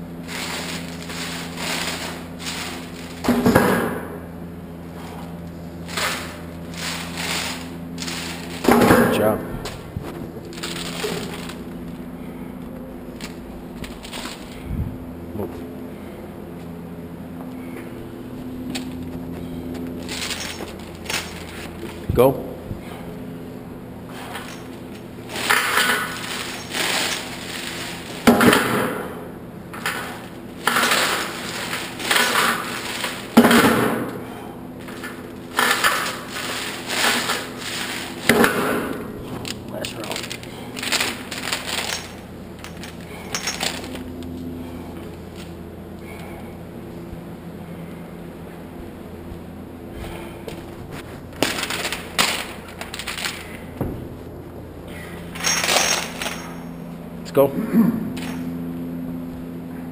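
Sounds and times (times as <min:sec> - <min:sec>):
chains clanking and rattling: 0:20.0 - 0:21.7, 0:24.1 - 0:28.0, 0:40.0 - 0:44.0, 0:55.0 - 0:56.8.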